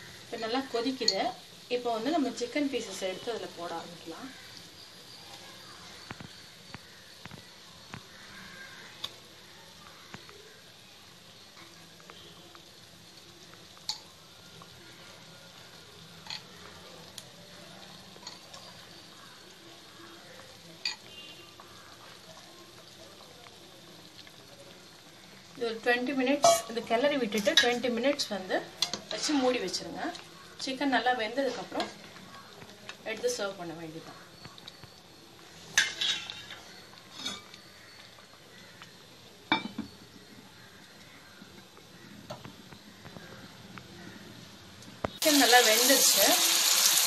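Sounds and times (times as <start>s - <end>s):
gravy boiling in a pan: 0.0s - 47.0s
glass lid clanking onto pan: 39.5s - 39.9s.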